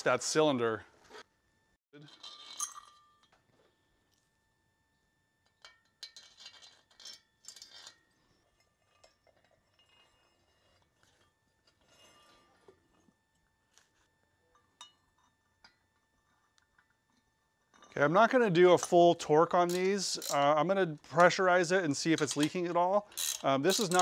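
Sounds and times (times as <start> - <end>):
soft metal scrape: 9.8 - 12.8.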